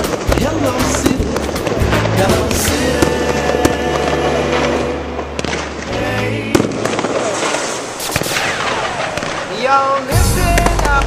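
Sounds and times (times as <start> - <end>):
music: 0.0 - 6.7, 10.1 - 11.0
fireworks bangs: 0.0 - 11.0.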